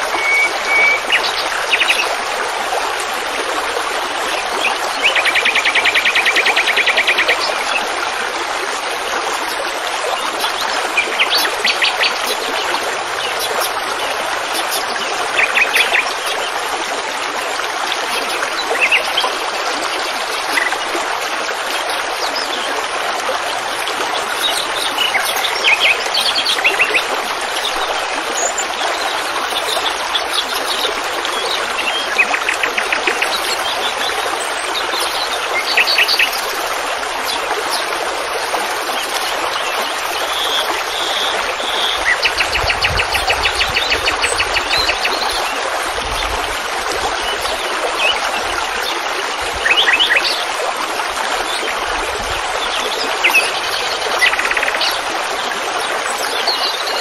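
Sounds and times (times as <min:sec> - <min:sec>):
songbirds singing: 0:00.0 - 0:02.2, 0:09.3 - 0:21.0, 0:23.5 - 0:46.5, 0:47.1 - 0:50.5, 0:52.6 - 0:57.0
running water: 0:00.0 - 0:57.0.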